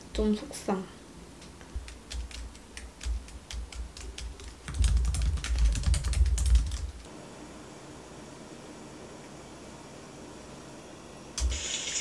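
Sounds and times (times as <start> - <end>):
typing on laptop keyboard: 1.8 - 7.0.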